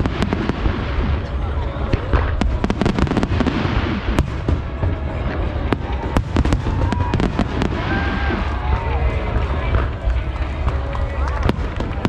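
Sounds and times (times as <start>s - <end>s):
fireworks bursting: 0.0s - 12.0s.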